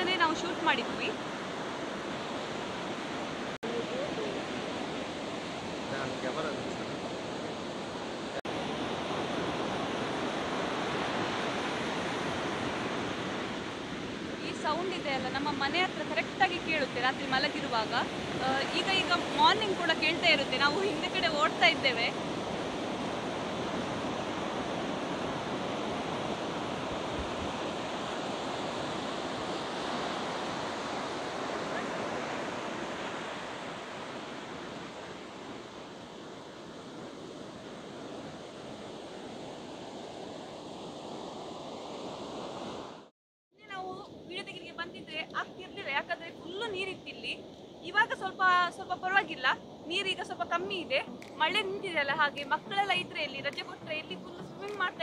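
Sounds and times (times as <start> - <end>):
waves breaking on beach: 0.0 - 43.1.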